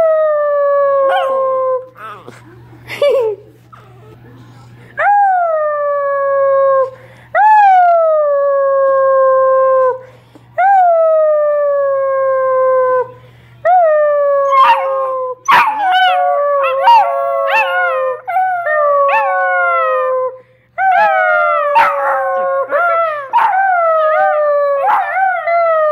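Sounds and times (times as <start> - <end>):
puppies howling: 20.8 - 25.9.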